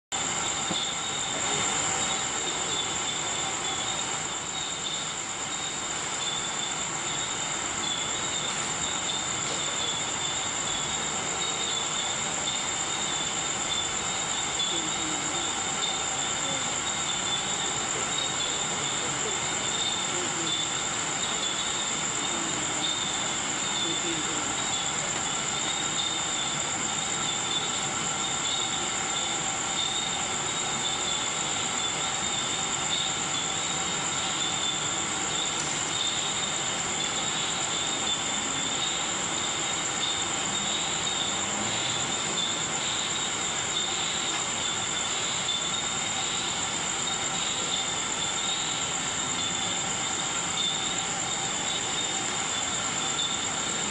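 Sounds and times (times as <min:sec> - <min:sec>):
night insects chorus: 0:00.0 - 0:53.9
hiss: 0:00.1 - 0:53.9
faint distant voices: 0:12.4 - 0:26.5.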